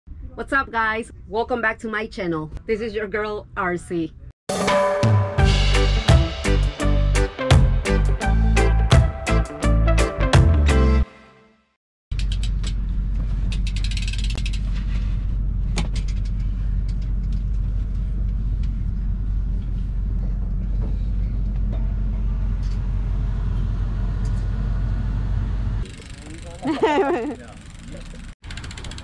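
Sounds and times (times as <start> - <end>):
bicycle parts clicking and rattling: 12.1 - 14.7, 25.8 - 29.0.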